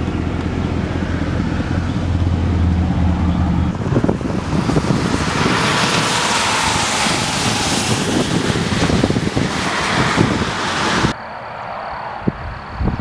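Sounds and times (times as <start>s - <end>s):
wind buffeting the microphone: 0.0s - 11.2s, 12.2s - 13.0s
tyres hissing on wet pavement: 3.9s - 11.1s.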